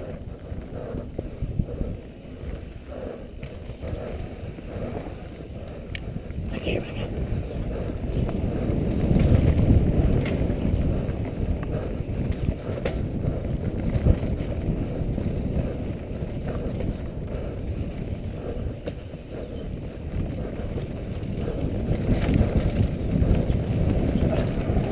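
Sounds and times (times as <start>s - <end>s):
wind buffeting microphone: 0.0s - 24.9s
bike knocks and rattles: 8.2s - 11.4s, 20.1s - 24.9s.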